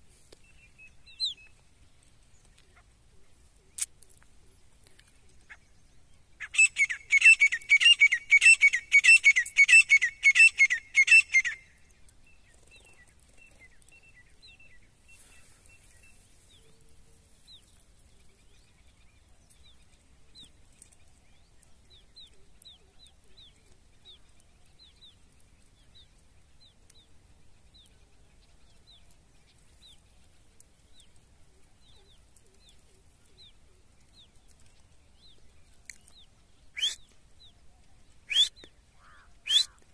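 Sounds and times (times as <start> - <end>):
small birds chirping: 0.0 - 39.9
francolin shrill calling: 6.4 - 11.7, 36.8 - 37.0, 38.3 - 39.8.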